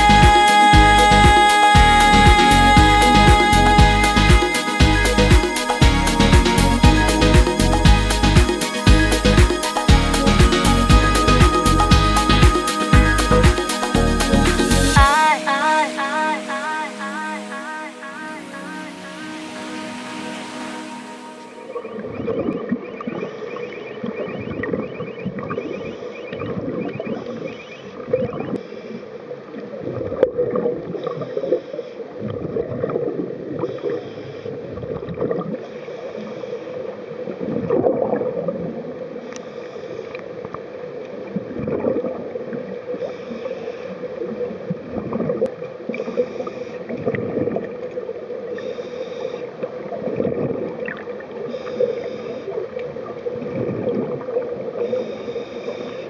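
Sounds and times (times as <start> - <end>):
low hum: 0.0 - 22.6
underwater bubbles gurgling: 29.4 - 34.0, 34.6 - 39.3, 40.0 - 43.1, 44.0 - 48.7, 49.5 - 55.2.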